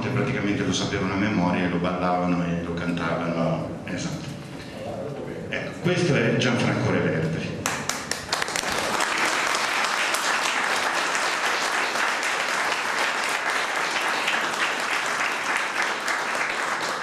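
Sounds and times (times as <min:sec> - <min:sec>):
audience applauding: 0:07.6 - 0:17.0.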